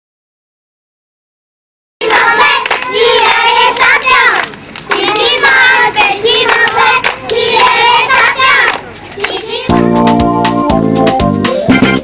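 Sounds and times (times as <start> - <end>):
high-pitched voices singing: 2.0 - 10.1.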